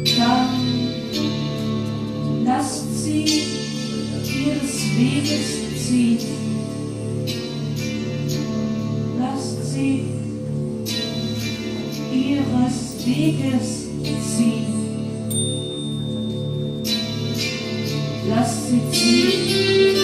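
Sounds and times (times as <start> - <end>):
woman singing without words: 0.0 - 1.6, 2.4 - 6.7, 9.2 - 10.3, 12.1 - 15.1, 18.2 - 20.0
gongs ringing: 10.9 - 20.0.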